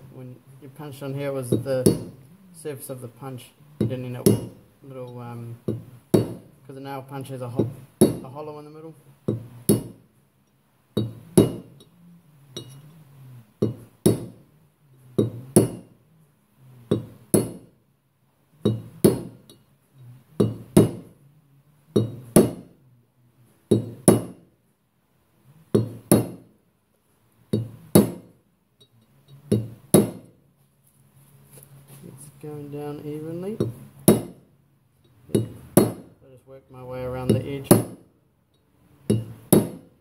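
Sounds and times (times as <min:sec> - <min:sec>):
hammer striking metal punch: 0:07.6 - 0:08.3, 0:11.0 - 0:11.8, 0:13.6 - 0:14.4, 0:16.9 - 0:17.7, 0:18.7 - 0:19.6, 0:20.4 - 0:21.1, 0:22.0 - 0:22.7, 0:23.7 - 0:24.4, 0:27.5 - 0:28.3, 0:29.5 - 0:30.3, 0:33.6 - 0:34.4, 0:35.3 - 0:36.1, 0:37.3 - 0:38.1, 0:39.1 - 0:40.0.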